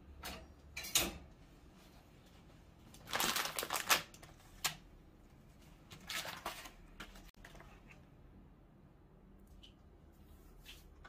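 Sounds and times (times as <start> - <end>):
crinkly packaging rustles: 2.9 - 4.8, 5.8 - 7.8.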